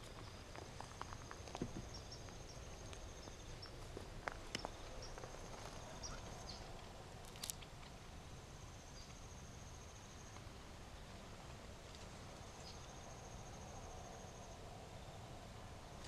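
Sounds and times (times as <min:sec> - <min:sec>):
soft footsteps on grass: 0:00.0 - 0:06.4
twigs ticking and snapping: 0:00.0 - 0:08.0.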